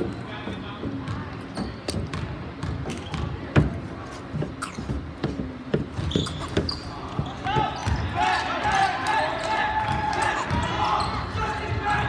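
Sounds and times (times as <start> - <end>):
basketball bouncing on court: 0.0 - 8.8, 9.4 - 11.8
shoe squeaks: 1.4 - 2.2, 2.9 - 3.4, 4.0 - 8.1.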